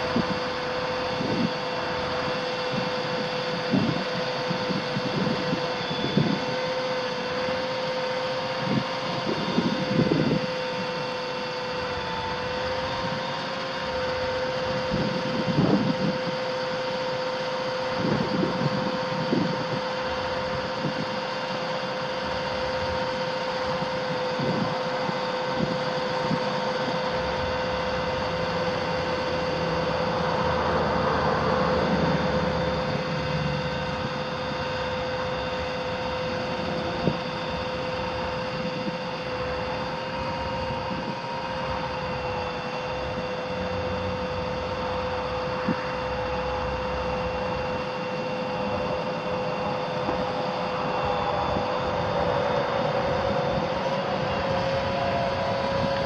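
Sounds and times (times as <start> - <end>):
engine rumbles: 0.0 - 56.0
steady whine: 0.0 - 56.0
diesel engine idling: 21.6 - 56.0.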